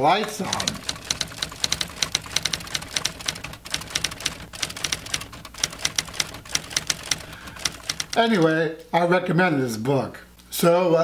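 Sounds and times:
rapid clicking and tapping: 0.1s - 8.6s.

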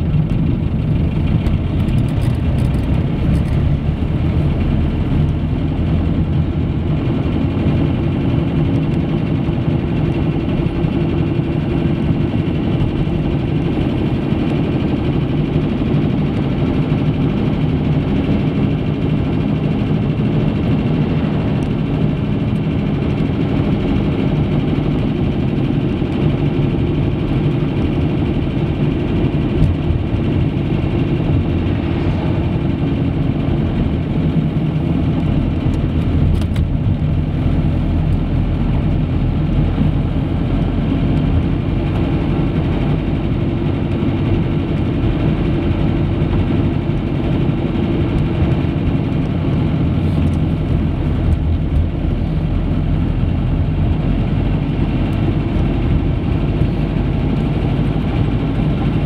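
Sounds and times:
car cabin road drone: 0.0s - 59.0s.

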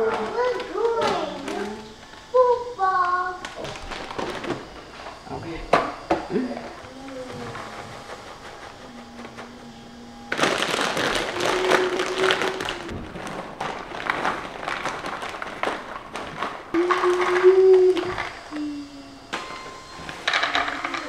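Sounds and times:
popcorn and chips rattling into container: 10.3s - 18.3s
snack bags crinkling: 10.3s - 18.3s.

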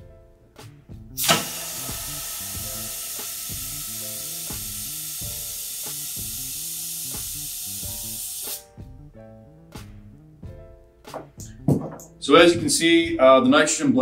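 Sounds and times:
compressed gas hissing through hose: 1.2s - 8.7s.

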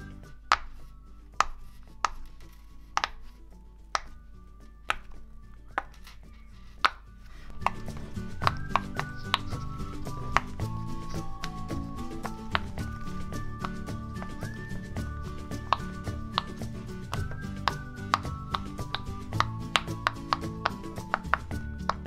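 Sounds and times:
fidget toy bubbles popping: 6.8s - 22.0s.

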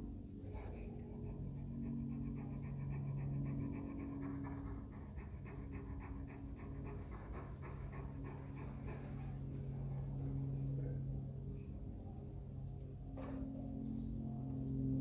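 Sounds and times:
steady low hum: 0.0s - 15.0s
dog panting rapidly: 0.3s - 11.1s.

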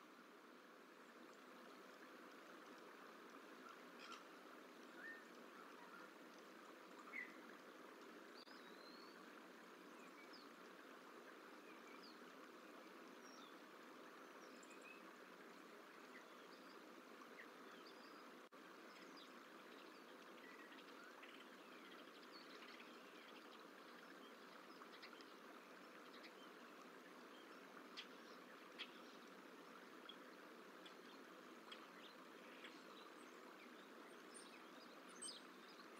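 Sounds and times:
low hiss: 0.0s - 35.9s
small birds chirping: 14.2s - 35.9s.

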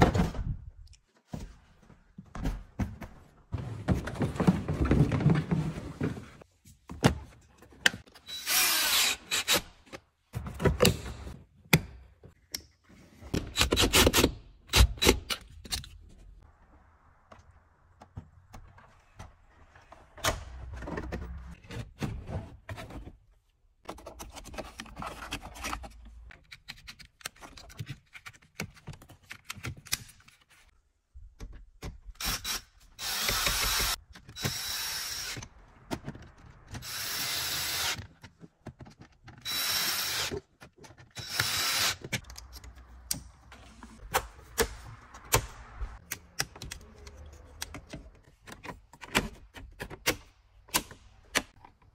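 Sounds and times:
cordless screwdriver whirring: 41.2s - 42.0s.

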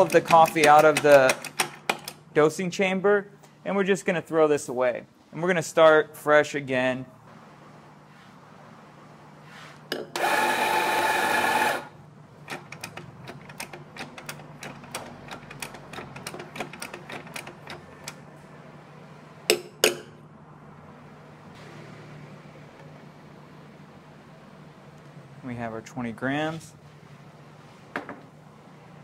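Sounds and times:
coffee grinder motor running: 10.1s - 12.0s.

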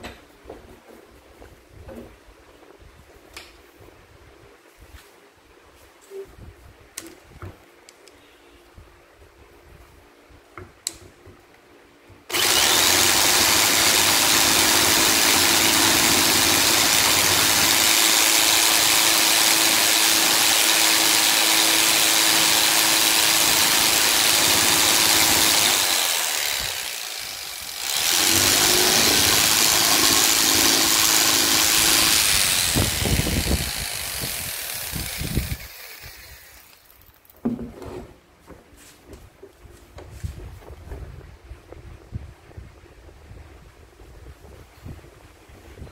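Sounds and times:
electric jigsaw sanding wood: 12.3s - 37.3s.

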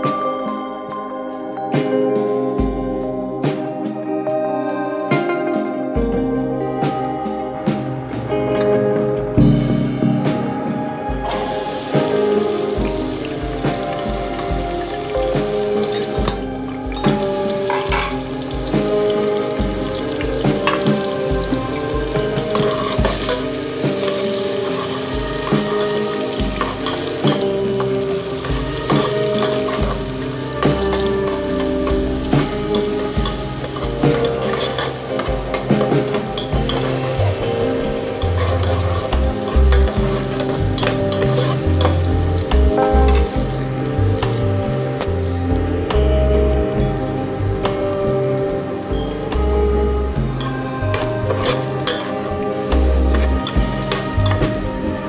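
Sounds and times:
background music: 0.0s - 55.0s
onions sizzling in hot oil: 11.3s - 55.0s
ladle stirring in pot: 17.7s - 42.2s.

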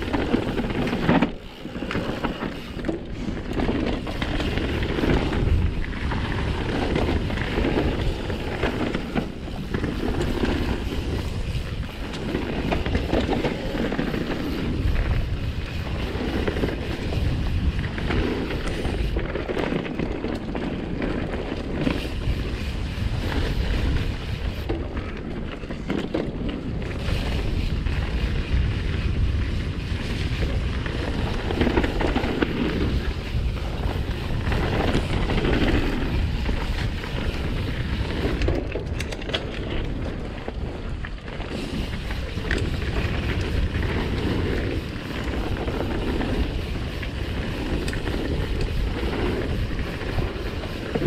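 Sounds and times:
bike rattling and knocking: 0.0s - 51.0s
bike tyres rumbling over dirt: 0.0s - 51.0s
wind on microphone: 0.0s - 51.0s.

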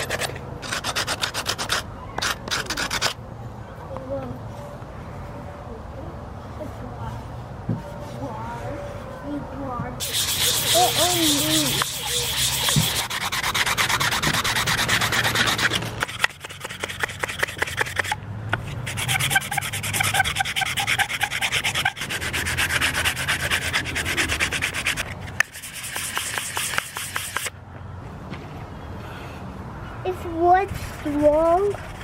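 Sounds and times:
hand sanding wood with sandpaper: 0.0s - 3.2s, 10.0s - 27.5s, 30.6s - 32.0s.

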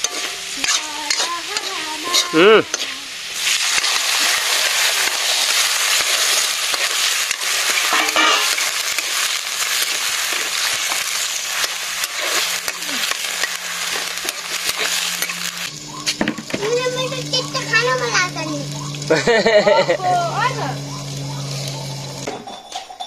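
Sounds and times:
metal ladle scraping wok: 0.0s - 18.1s
potato sticks sizzling in oil: 0.0s - 22.3s.

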